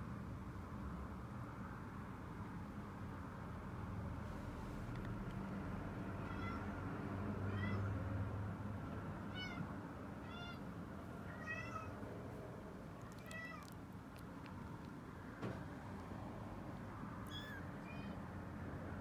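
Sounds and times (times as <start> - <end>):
kitten mewing: 11.3 - 12.0, 12.9 - 14.5, 17.2 - 18.3.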